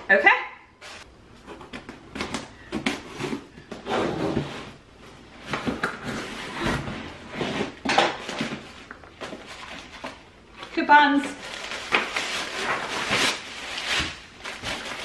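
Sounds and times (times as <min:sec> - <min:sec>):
paper rustling: 0:11.4 - 0:15.0.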